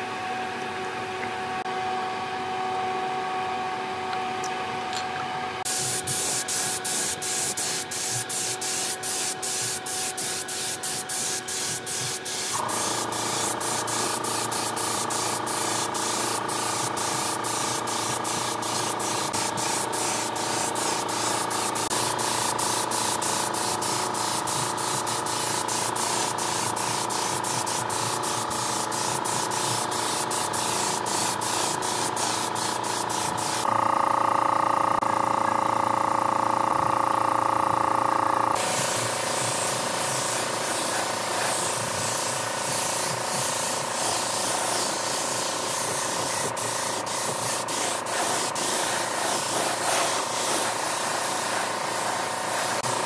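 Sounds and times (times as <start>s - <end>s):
compressed-air tool hissing: 5.7s - 33.7s, 38.6s - 53.0s.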